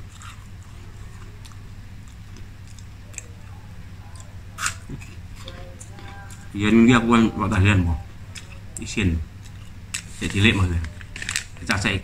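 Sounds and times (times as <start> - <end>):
person chewing food: 0.0 - 6.6
steady low hum: 0.0 - 12.0.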